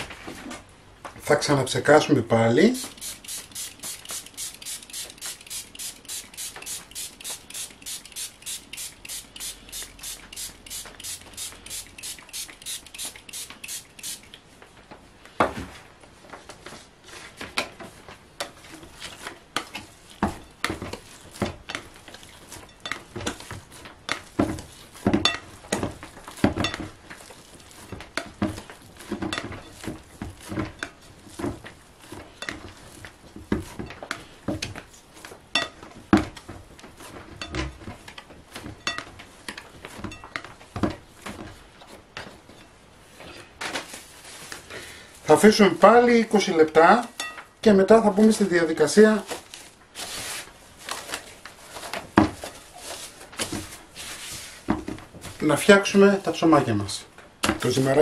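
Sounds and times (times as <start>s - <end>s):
spray bottle squirting: 2.8s - 14.4s.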